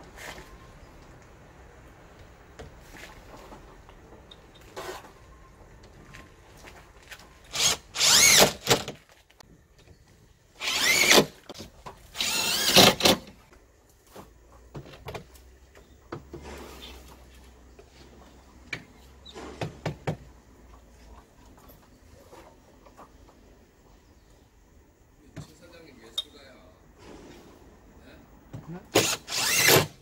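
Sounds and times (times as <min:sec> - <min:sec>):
cordless driver motor whirring: 0:07.5 - 0:08.7, 0:10.6 - 0:11.3, 0:12.2 - 0:13.1, 0:29.0 - 0:30.0.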